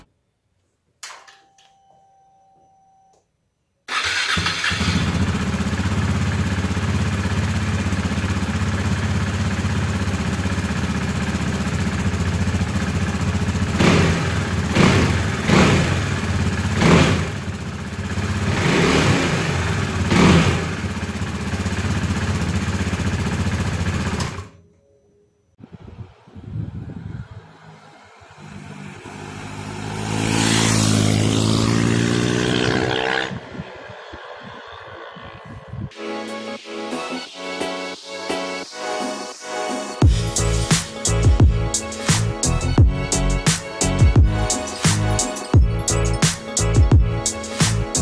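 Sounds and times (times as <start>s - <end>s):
motorcycle engine revving: 3.9s - 24.6s, 25.7s - 35.9s.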